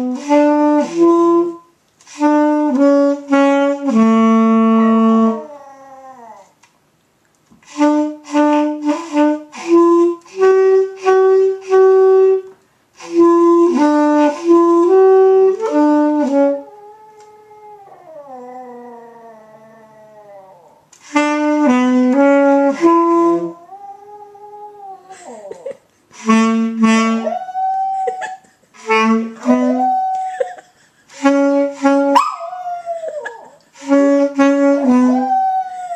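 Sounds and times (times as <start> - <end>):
saxophone playing held notes: 0.0 - 5.6, 7.6 - 17.4, 21.0 - 24.2, 26.2 - 30.4, 31.1 - 35.9
dog howling: 5.4 - 6.5, 16.8 - 20.8.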